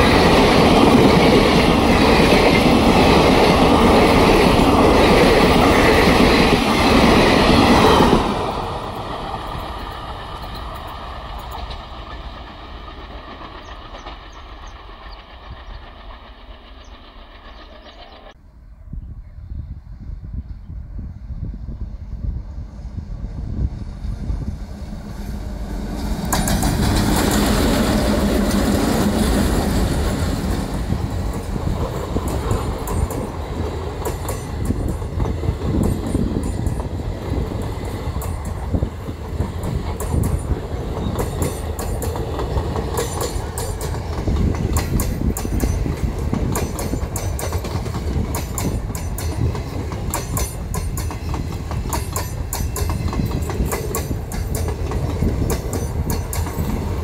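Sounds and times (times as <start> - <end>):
train wheels clattering over rail joints: 0.0 - 18.4, 25.1 - 57.0
diesel locomotives passing: 0.0 - 57.0.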